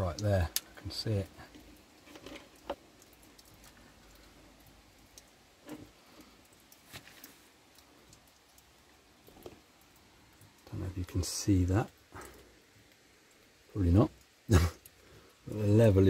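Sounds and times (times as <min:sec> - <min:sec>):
faint clicks and light taps: 0:00.0 - 0:11.2.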